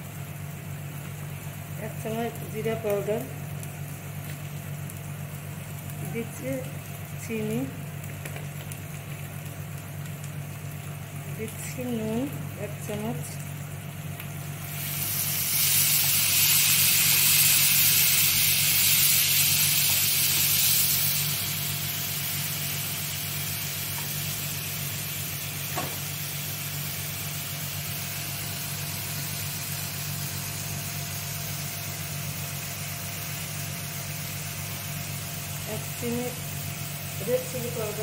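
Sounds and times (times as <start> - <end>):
paste sizzling in oil: 14.3 - 38.0.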